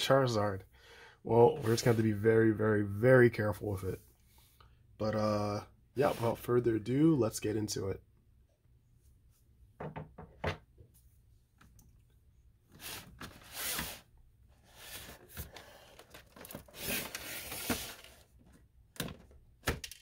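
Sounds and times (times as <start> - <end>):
card rubbing and sliding: 12.8 - 14.1, 16.7 - 18.2.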